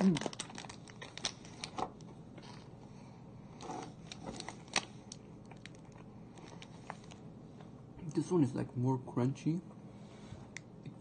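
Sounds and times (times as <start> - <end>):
person chewing granola bar: 4.0 - 7.2.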